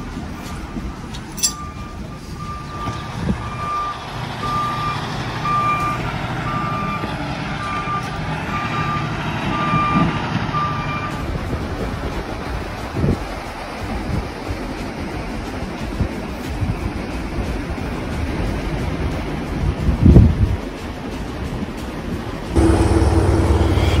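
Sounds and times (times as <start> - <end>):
wind on microphone: 0.0 - 4.6, 9.2 - 24.0
engine running low: 0.0 - 24.0
reversing alarm beeping: 1.4 - 11.2, 22.6 - 24.0.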